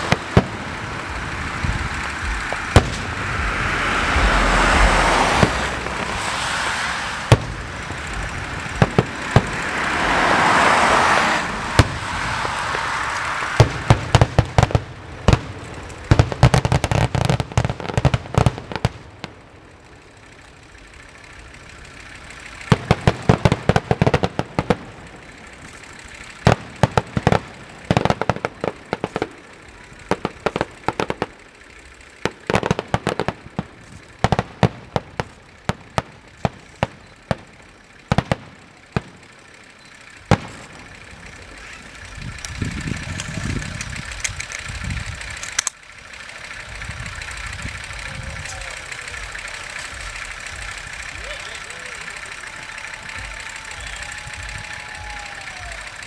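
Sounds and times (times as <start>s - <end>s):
loud rushing hiss: 0.0s - 20.0s, 46.0s - 56.0s
firework bangs: 0.0s - 56.0s
firework crackling: 0.0s - 56.0s.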